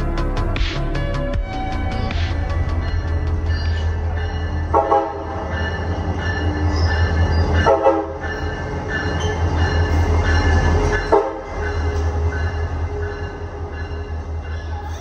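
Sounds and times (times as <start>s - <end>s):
diesel locomotive engine rumbling: 0.0s - 15.0s
train horn blasts: 4.7s - 5.4s, 7.6s - 8.2s, 11.1s - 11.6s.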